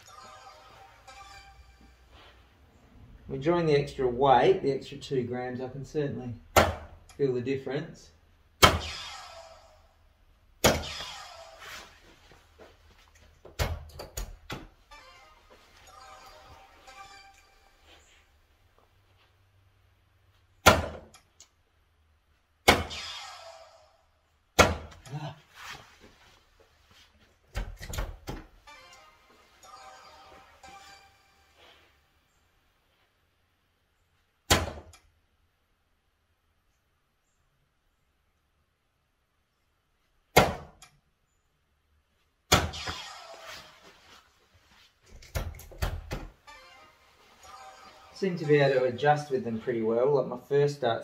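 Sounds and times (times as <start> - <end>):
darts hitting dartboard: 6.5 - 7.0, 8.6 - 9.1, 10.6 - 11.2, 20.6 - 21.2, 24.6 - 25.0, 34.5 - 35.0, 40.3 - 40.8, 42.5 - 43.0
dart hitting plastic board: 6.6 - 6.9, 20.7 - 21.2, 24.6 - 25.0, 34.5 - 35.0.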